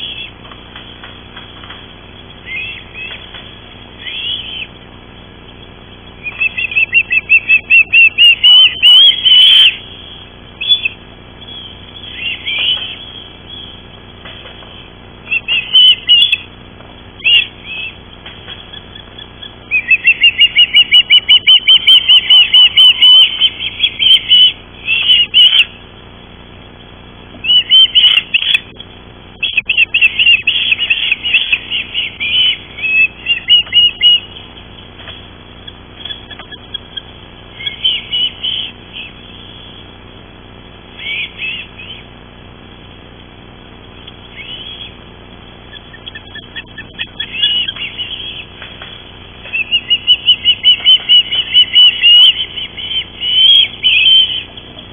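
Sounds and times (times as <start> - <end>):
ospreys chirping whistles: 0.0 - 0.4, 2.4 - 3.3, 3.9 - 4.9, 5.5 - 14.0, 15.2 - 16.5, 17.2 - 18.0, 18.7 - 25.8, 27.4 - 28.8, 29.4 - 34.6, 36.0 - 40.0, 41.0 - 42.1, 44.0 - 45.0, 45.6 - 48.6, 49.4 - 54.8.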